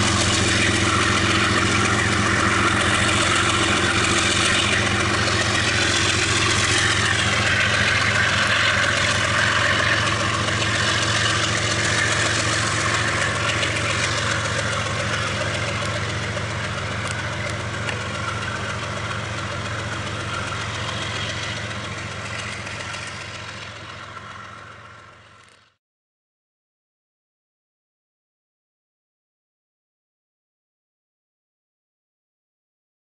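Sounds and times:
steady rushing noise: 0.0s - 25.3s
locomotive low drone: 0.0s - 25.8s.

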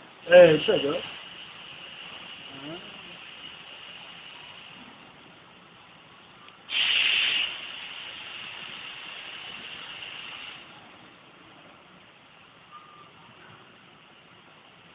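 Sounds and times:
constant faint high hiss: 0.0s - 14.9s
compressed air hissing: 0.3s - 5.1s, 6.6s - 10.8s.

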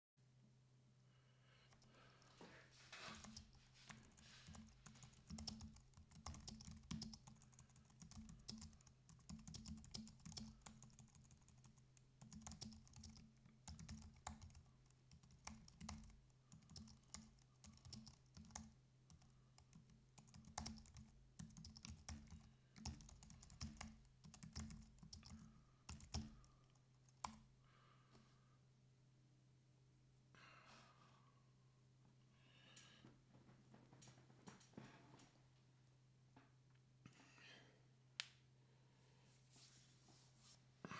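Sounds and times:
typing on a keyboard: 3.2s - 27.4s.

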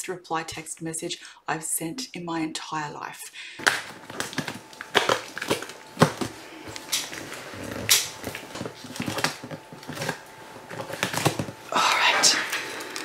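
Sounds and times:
box and plastic pouch rustling: 3.6s - 11.6s.

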